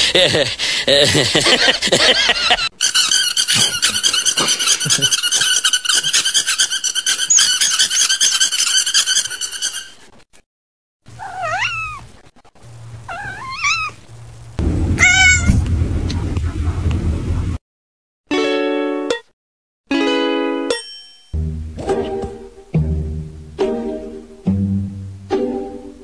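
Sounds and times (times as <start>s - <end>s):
cats meowing: 11.1s - 12.2s, 13.0s - 14.0s, 15.0s - 15.6s.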